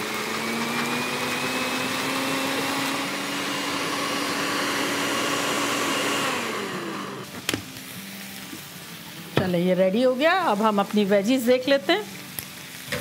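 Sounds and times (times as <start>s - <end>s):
blender motor whining: 0.0s - 7.3s.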